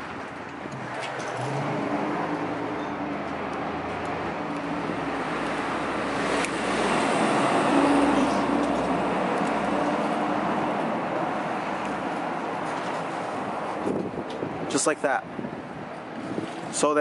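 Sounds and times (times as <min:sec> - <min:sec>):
road traffic noise: 0:00.0 - 0:17.0
vehicle passing: 0:00.7 - 0:14.1.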